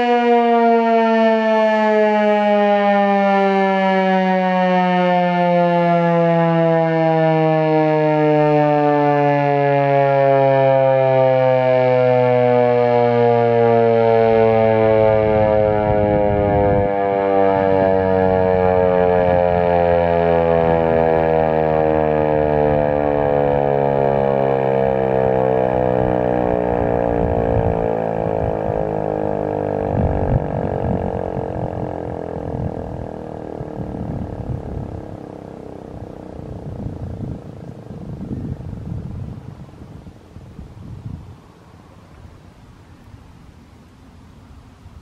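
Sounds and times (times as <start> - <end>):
electronic siren steady tone: 0.0 - 43.0
low rumble: 25.8 - 40.1.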